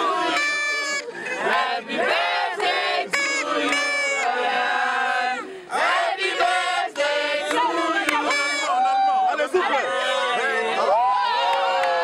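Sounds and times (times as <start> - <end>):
party crowd cheering: 7.4 - 12.0.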